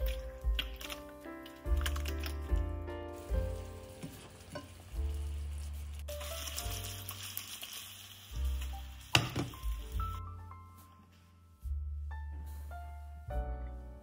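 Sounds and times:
background music: 0.0 - 14.0
food sizzling in a frying pan: 3.1 - 10.2.

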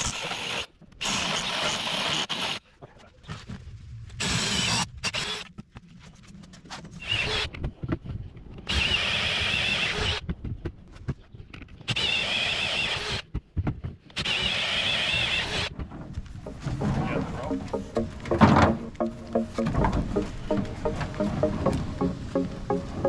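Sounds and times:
cordless drill boring wood: 0.0 - 2.6, 4.2 - 5.5, 8.7 - 10.2, 11.9 - 13.2, 14.2 - 15.7.

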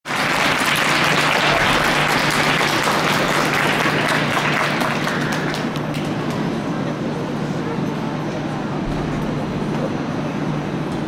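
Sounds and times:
small audience clapping: 0.0 - 6.4.

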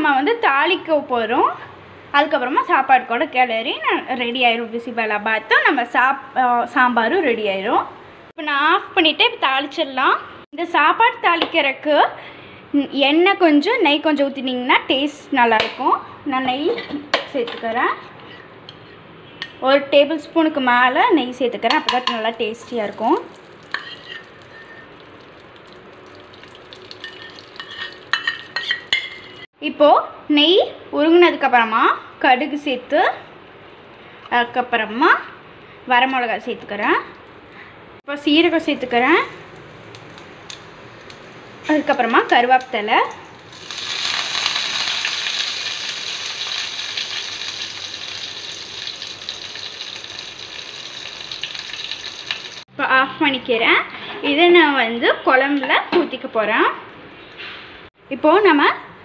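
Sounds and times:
ghee sizzling in pan: 22.1 - 29.5, 39.2 - 52.7.

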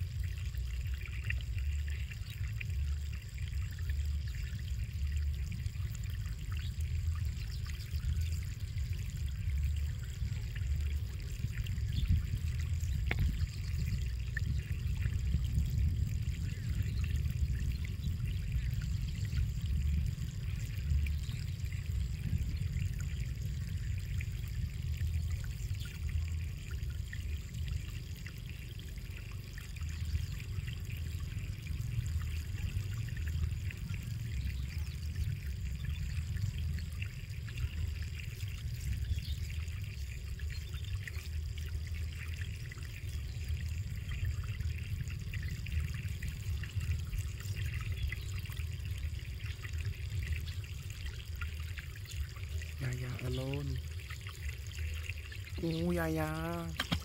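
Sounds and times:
wind buffeting microphone: 6.6 - 28.5.

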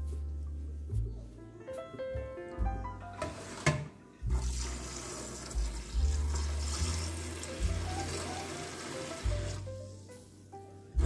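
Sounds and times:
tap water running into steel bowl: 3.2 - 9.6.

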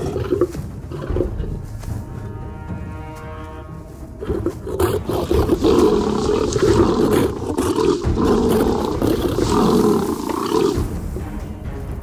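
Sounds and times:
lions snarling and growling: 0.0 - 1.8, 4.1 - 11.4.

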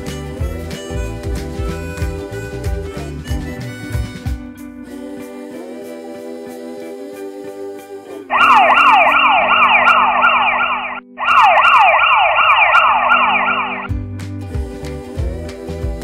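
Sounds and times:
background music: 0.0 - 16.0
siren yelp: 8.3 - 13.9.

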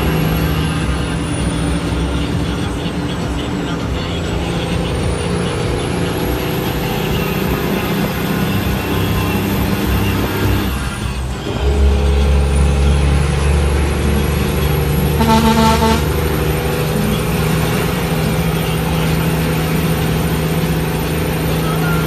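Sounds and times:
diesel engine drone in cab: 0.0 - 22.0
truck horn toot: 11.5 - 19.1.

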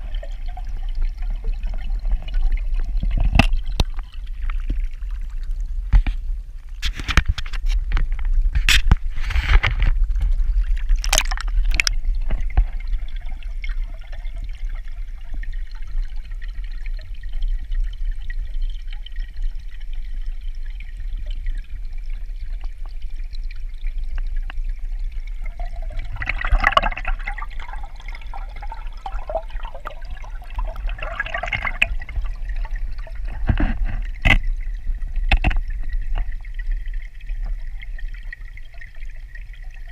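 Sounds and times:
muffled underwater rumble: 0.0 - 39.9
pond water splashing: 8.7 - 13.2.

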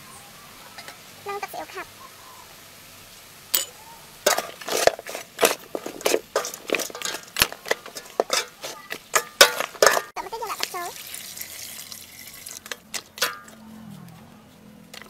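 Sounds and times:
metal ladle scraping a pot: 3.6 - 10.2.

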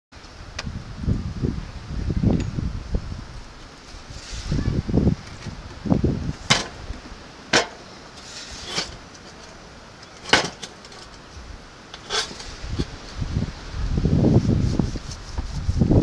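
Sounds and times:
sharp metal knocks: 6.5 - 6.8, 7.5 - 7.9, 10.2 - 11.1.

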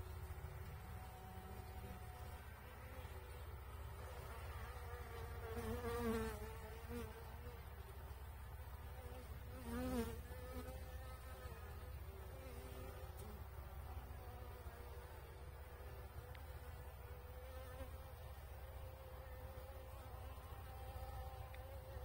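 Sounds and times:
honeybees buzzing: 0.0 - 22.0.

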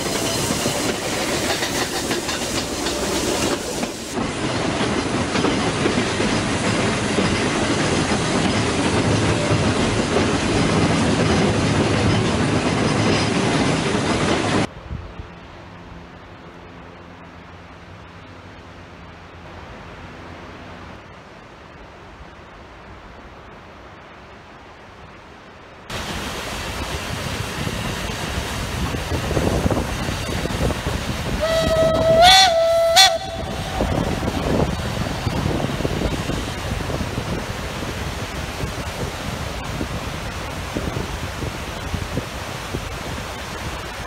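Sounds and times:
faint hiss: 0.0 - 44.0
train rumbling over viaduct: 0.0 - 44.0
waterfall rushing: 21.3 - 44.0
steam locomotive whistle: 31.3 - 35.5.

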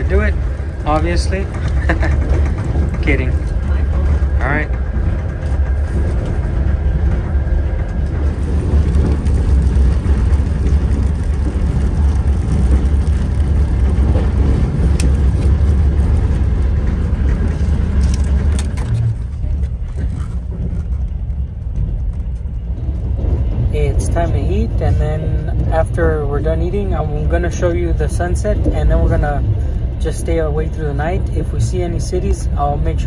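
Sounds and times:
train rumble and clatter: 0.0 - 33.0.

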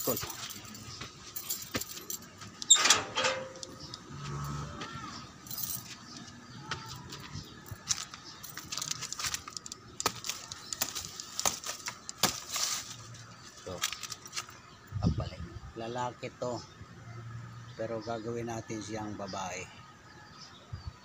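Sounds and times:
handling clicks and knocks: 0.0 - 4.1, 7.5 - 13.0.

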